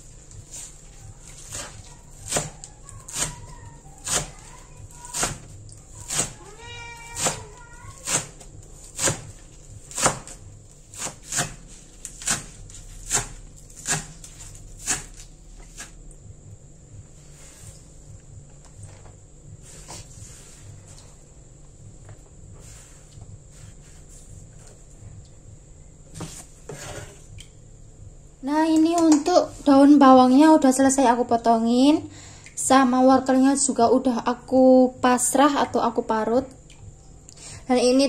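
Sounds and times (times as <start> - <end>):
knife chopping on wooden board: 1.2 - 3.4, 4.0 - 6.4, 7.1 - 16.0
cat meowing: 6.4 - 7.9.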